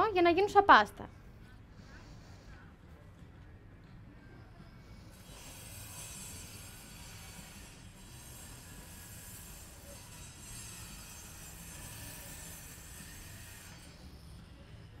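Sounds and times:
low background hum: 0.0 - 6.0
hiss: 5.1 - 14.3.

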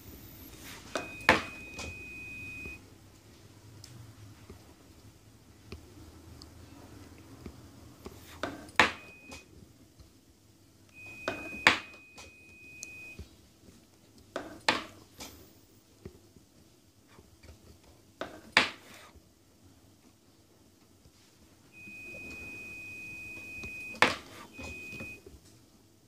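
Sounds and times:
faint high beep tone: 0.0 - 2.8, 8.9 - 9.4, 10.9 - 13.2, 21.7 - 25.2.

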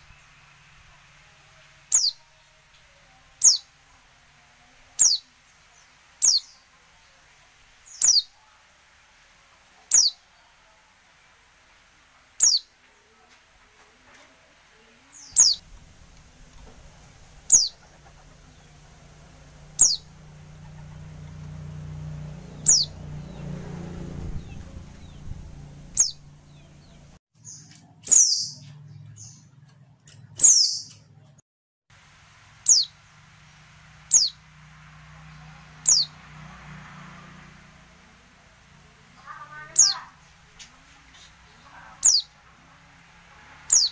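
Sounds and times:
bird high downward calls: 1.9 - 2.5, 3.3 - 3.8, 5.0 - 6.7, 7.8 - 8.4, 9.8 - 10.3, 12.4 - 12.8, 15.1 - 29.5, 32.6 - 34.5, 35.2 - 36.3, 39.2 - 40.3, 41.5 - 42.4, 43.7 - 43.9.

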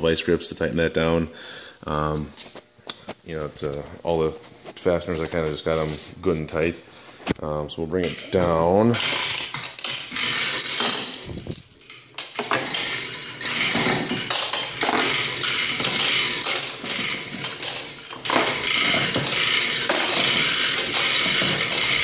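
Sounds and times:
hoist chain rattling: 8.0 - 22.0.

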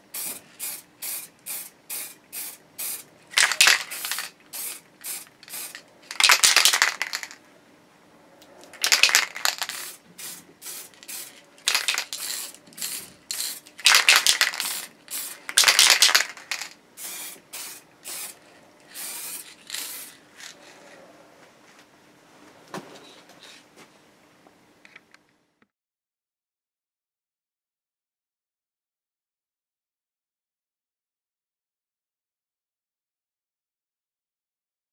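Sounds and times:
spray paint can hissing: 0.1 - 7.4, 8.8 - 20.5.

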